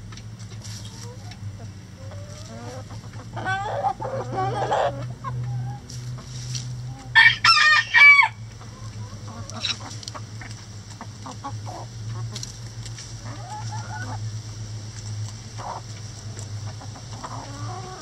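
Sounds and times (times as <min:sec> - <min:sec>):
chickens clucking: 0:00.0 - 0:18.0
chickens pecking: 0:00.0 - 0:18.0
steady low hum: 0:00.0 - 0:18.0
rooster crowing: 0:07.1 - 0:08.4.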